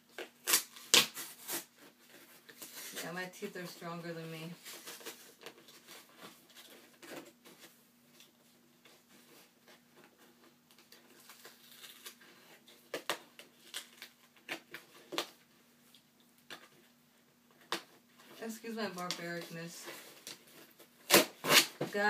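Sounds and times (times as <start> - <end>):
package rustling and scraping: 4.4 - 15.4.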